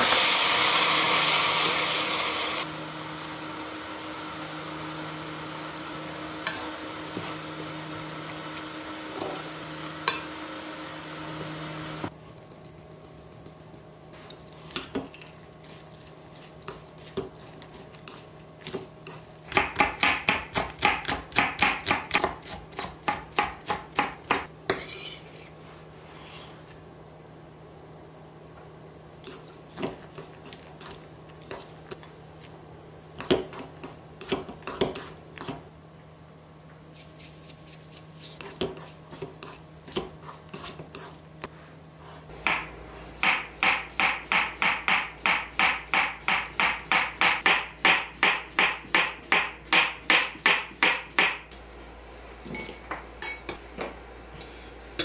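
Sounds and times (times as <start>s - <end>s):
knife chopping on wooden board: 19.5s - 24.5s, 42.4s - 51.4s.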